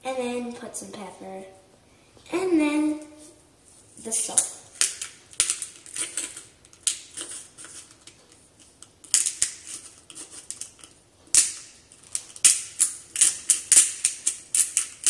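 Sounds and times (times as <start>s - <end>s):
salt grinder crunching: 11.4s - 15.0s.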